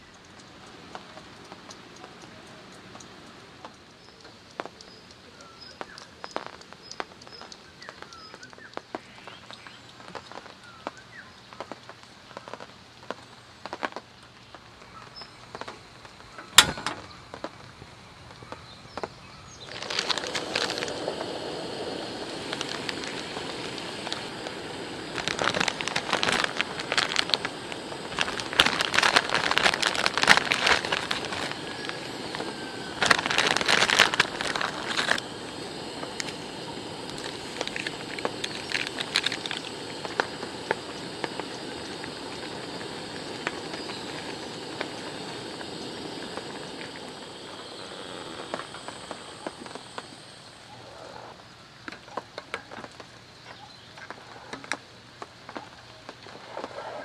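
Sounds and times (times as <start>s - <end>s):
birds chirping: 0.0s - 12.6s, 14.2s - 52.4s, 53.3s - 54.3s
rain dripping off tarp: 0.0s - 50.8s, 51.4s - 57.0s
water boiling: 0.0s - 57.0s
gas burner running: 15.5s - 17.7s, 19.0s - 50.8s
stove lighting click: 15.6s - 17.1s.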